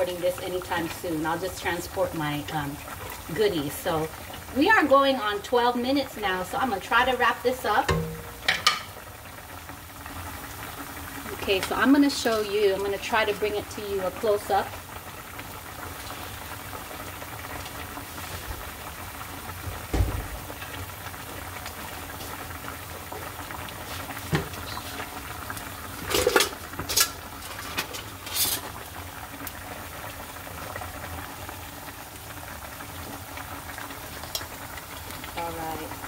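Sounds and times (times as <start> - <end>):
soup bubbling: 0.0 - 36.0
low thump: 19.9 - 20.4.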